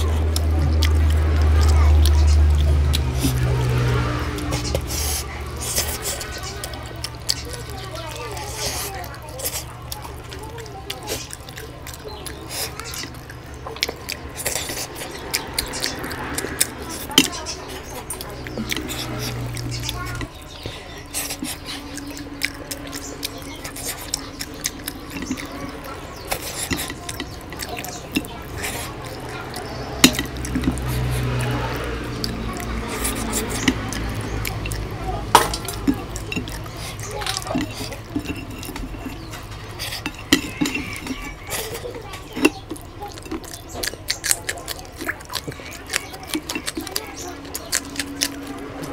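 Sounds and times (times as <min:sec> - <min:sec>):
person eating: 0:00.0 - 0:48.9
wet chewing and smacking: 0:00.0 - 0:48.9
soft mouth noises: 0:04.4 - 0:48.6
sharp clicks and clinks: 0:33.4 - 0:48.9.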